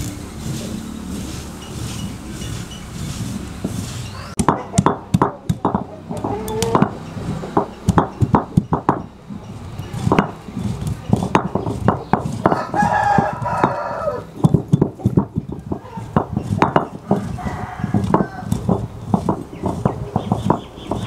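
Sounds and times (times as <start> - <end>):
stone roller crushing spices: 0.0 - 21.0
rooster crowing: 4.1 - 4.4, 12.5 - 14.4, 17.0 - 18.6.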